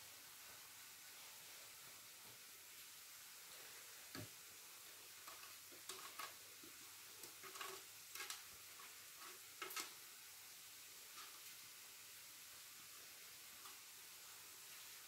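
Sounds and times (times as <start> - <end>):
grating on metal grater: 5.2 - 6.4, 7.2 - 9.9.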